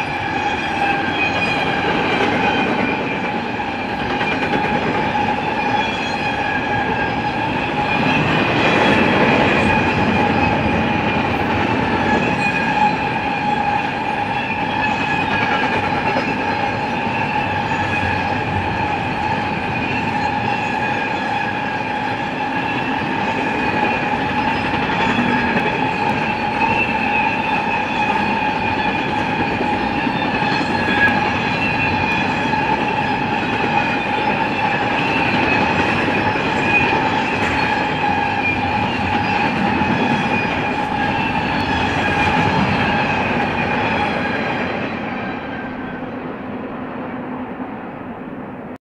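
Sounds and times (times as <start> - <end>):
train wheels rumbling on rail: 0.0 - 48.8.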